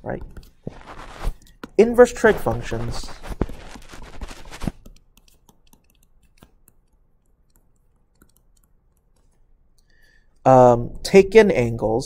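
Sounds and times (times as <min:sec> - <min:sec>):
stylus tapping on tablet: 0:03.2 - 0:09.4.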